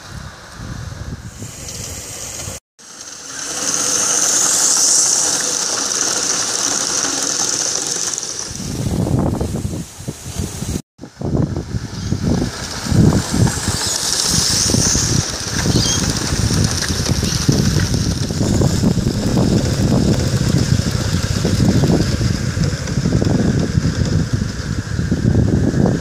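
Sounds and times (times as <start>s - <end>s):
wind buffeting microphone: 0.0s - 2.6s, 8.4s - 26.0s
steam hiss: 0.0s - 26.0s
model steam train running: 1.4s - 10.6s, 11.2s - 26.0s.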